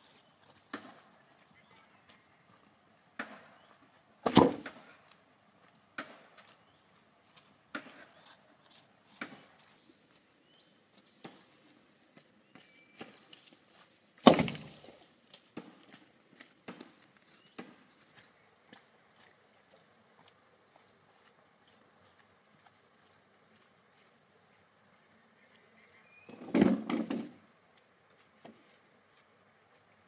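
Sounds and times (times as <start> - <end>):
footsteps on dirt path: 0.0 - 26.3, 27.4 - 30.0
bamboo pole thudding on ground: 4.2 - 4.8, 14.2 - 15.0.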